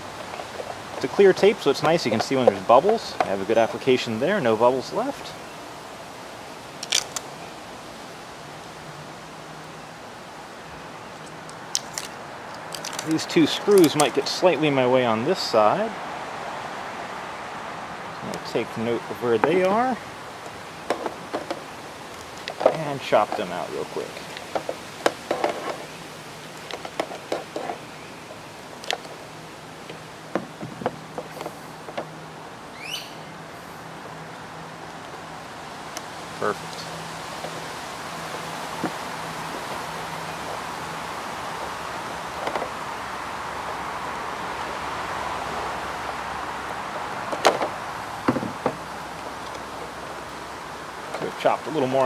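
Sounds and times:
outdoor background hiss: 0.0s - 52.0s.

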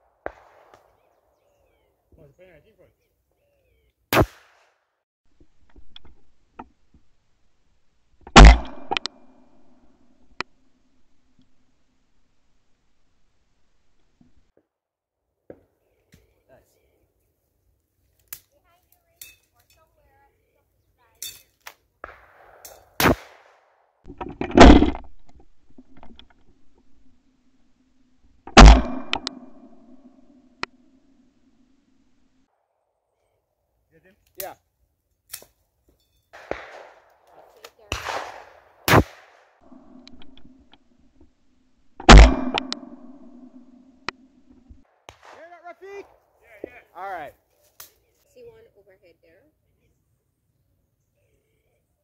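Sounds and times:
shotgun shots: 0.2s - 1.2s, 4.1s - 4.8s, 8.3s - 9.4s, 22.0s - 23.8s, 28.5s - 30.0s, 36.4s - 40.0s, 42.0s - 43.7s, 45.1s - 46.3s.

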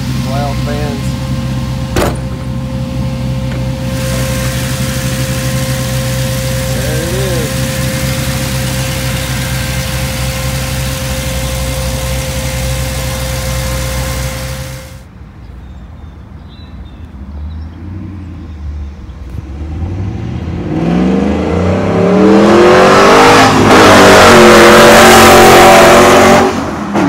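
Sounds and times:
pickup engine accelerating hard: 0.0s - 14.9s, 19.3s - 27.0s
engine idling: 0.0s - 15.0s.

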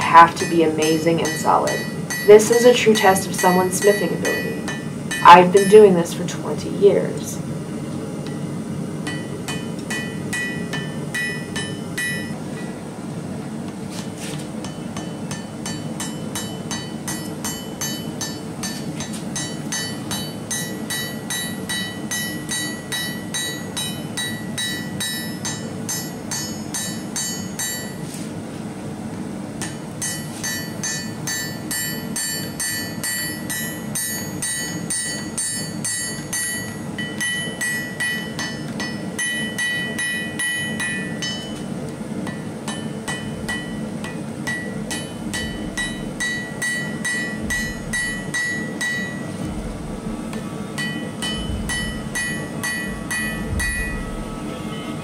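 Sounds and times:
hammer ringing on hot steel: 0.0s - 6.1s, 8.2s - 12.8s, 14.6s - 28.0s, 29.6s - 55.0s.

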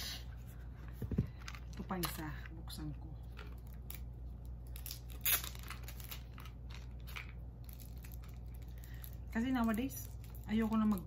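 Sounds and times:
packaging crinkling and tearing: 3.4s - 11.0s.

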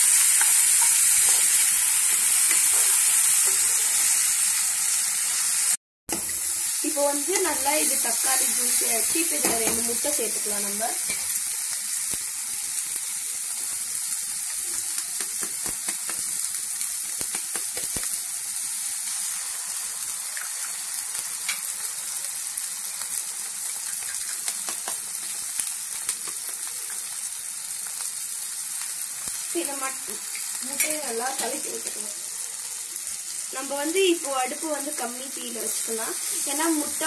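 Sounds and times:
oil sizzling in a pan: 0.0s - 37.0s
utensil clicking against pan: 17.2s - 18.1s, 23.9s - 25.2s.

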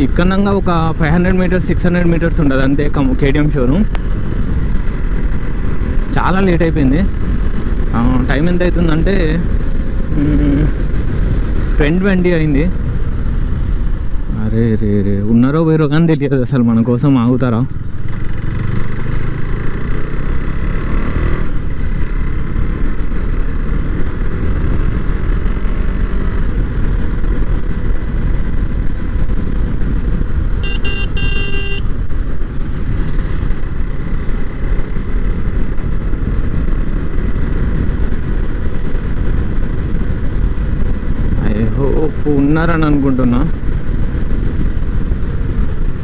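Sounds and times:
motorcycle engine and road noise: 0.0s - 46.0s
motorcycle horn: 30.6s - 31.9s.

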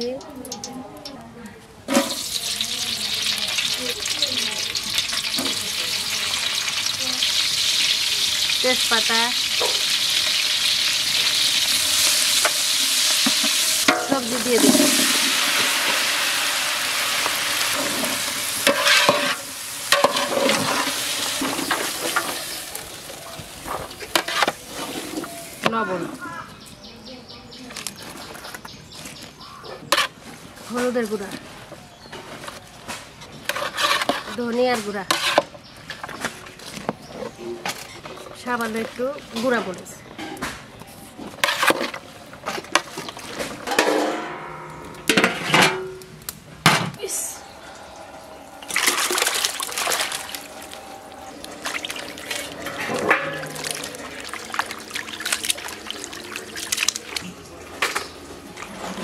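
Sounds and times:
vegetables sizzling in hot oil: 2.0s - 25.7s
metal ladle knocking on pot: 13.3s - 15.2s, 52.6s - 54.4s
metal lid clattering onto pot: 43.7s - 46.0s, 52.6s - 54.0s.

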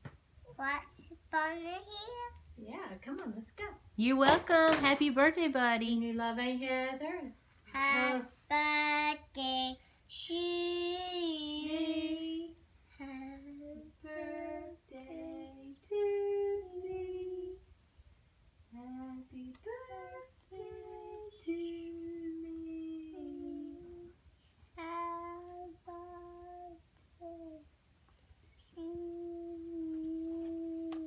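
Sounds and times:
child humming: 24.8s - 27.7s, 28.8s - 31.0s.

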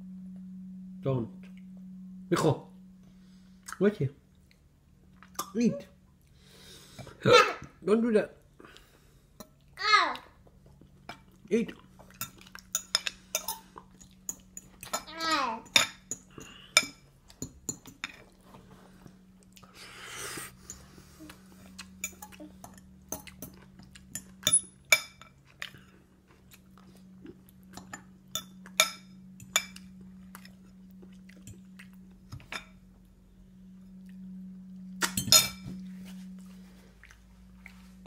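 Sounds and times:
toddler vocal sound: 9.8s - 10.4s, 15.1s - 15.7s.

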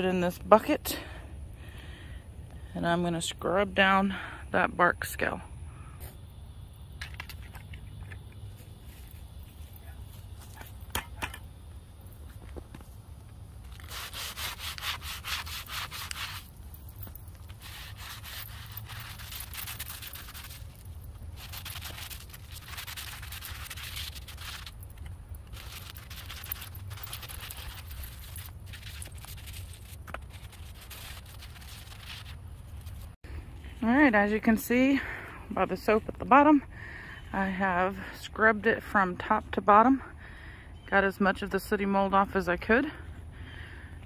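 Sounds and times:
scrub brush scratching bark: 13.6s - 33.2s.

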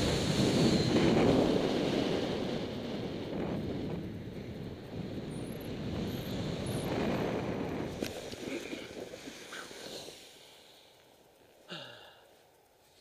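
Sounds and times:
wind rushing over microphone: 0.0s - 9.8s
breathy vocal sound: 11.7s - 12.3s.

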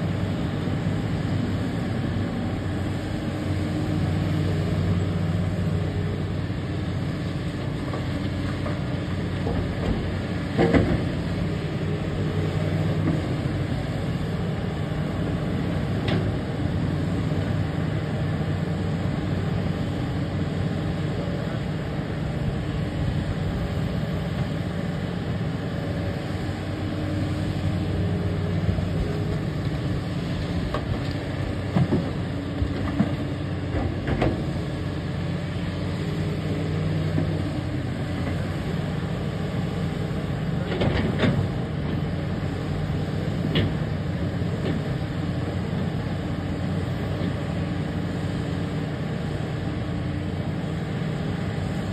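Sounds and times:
diesel engine hum: 0.0s - 51.9s
excavator bucket clanks and thuds: 9.5s - 11.1s.

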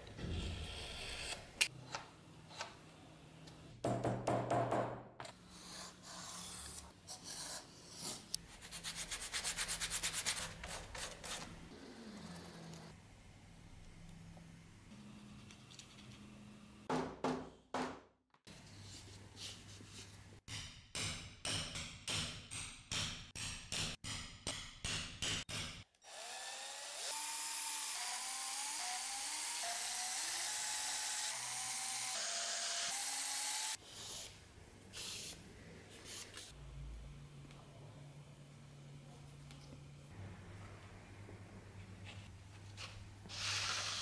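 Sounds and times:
cordless drill boring leather: 26.0s - 34.2s.

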